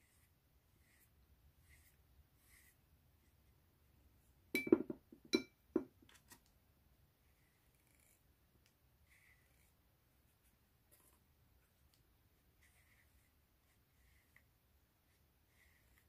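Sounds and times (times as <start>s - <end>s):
paintbrush clinking against glass jar: 4.6s - 5.9s.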